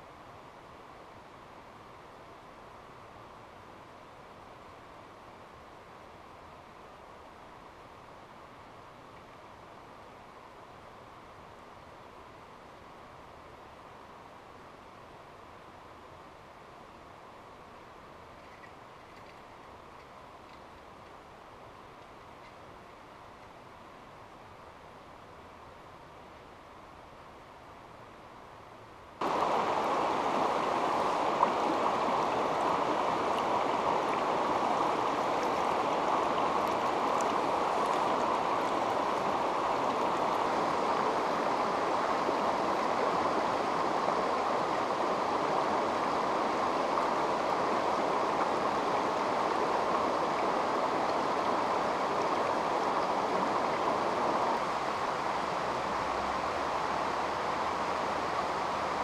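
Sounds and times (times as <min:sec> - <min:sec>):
river rushing over rocks: 0:29.2 - 0:59.0.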